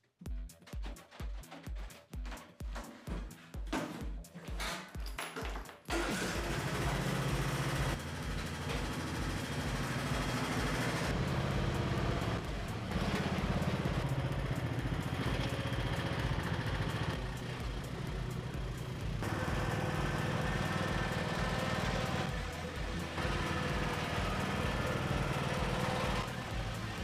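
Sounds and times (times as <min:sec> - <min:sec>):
ride-on mower engine running: 0:05.9 - 0:27.0.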